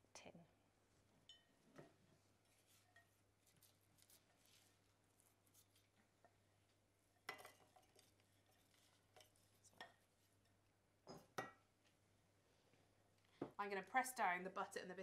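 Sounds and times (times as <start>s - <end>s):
wooden spoon scraping ceramic bowl: 2.5s - 4.6s, 7.3s - 10.5s.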